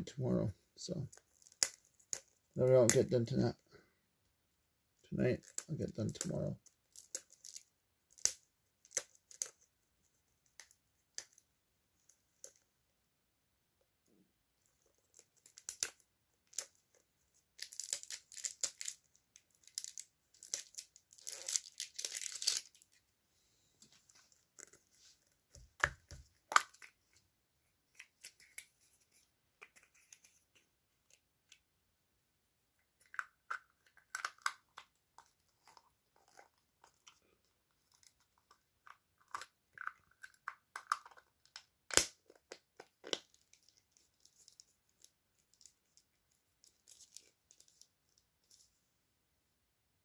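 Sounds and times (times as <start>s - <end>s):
wrapping crinkling and tearing: 5.4s - 9.6s, 17.6s - 23.0s, 39.2s - 48.6s.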